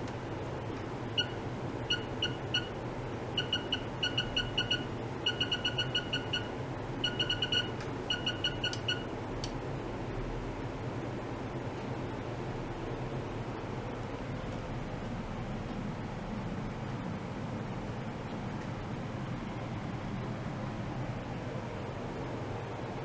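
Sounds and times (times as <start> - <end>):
background hiss and hum: 0.0 - 23.0
short electronic beeps: 1.1 - 2.8, 3.4 - 9.1.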